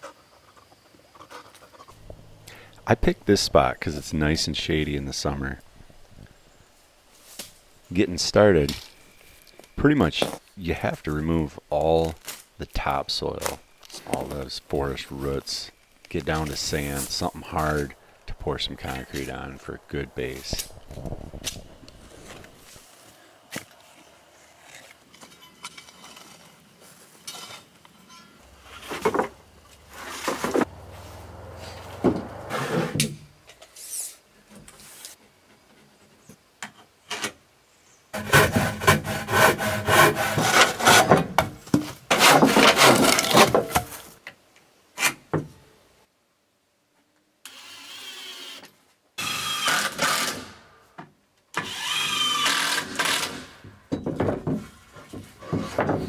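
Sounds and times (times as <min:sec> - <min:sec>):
sawing wood: 0:38.2 - 0:41.2, 0:42.1 - 0:43.6.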